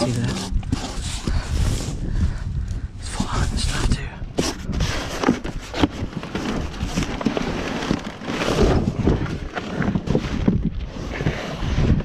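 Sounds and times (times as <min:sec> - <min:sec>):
cardboard box rustling and knocking: 0:00.0 - 0:01.4, 0:04.4 - 0:10.8.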